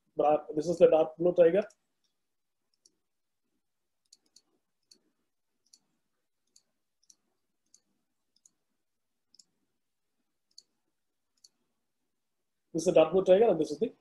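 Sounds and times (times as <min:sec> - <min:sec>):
computer mouse clicks: 0:01.6 - 0:03.0, 0:04.0 - 0:08.6, 0:09.3 - 0:09.6, 0:10.4 - 0:10.8, 0:11.4 - 0:11.6.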